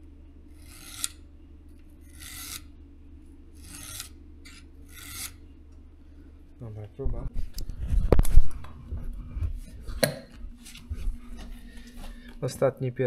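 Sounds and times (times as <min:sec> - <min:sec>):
file rasping on metal: 0:00.6 - 0:01.2, 0:02.1 - 0:02.7, 0:03.6 - 0:05.4.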